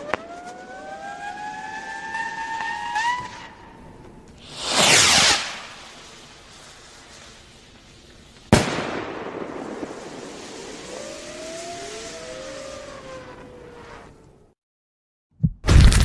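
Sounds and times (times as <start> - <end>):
firework whistles and hiss: 0.0 - 14.3
firework bang: 4.4 - 7.2, 8.5 - 11.3
firework rushing burst: 4.4 - 14.2.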